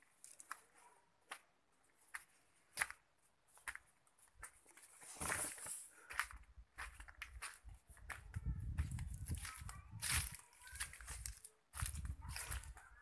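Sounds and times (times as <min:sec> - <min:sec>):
footsteps on dirt and leaves: 0:00.0 - 0:13.0
leaves rustling: 0:09.1 - 0:13.0.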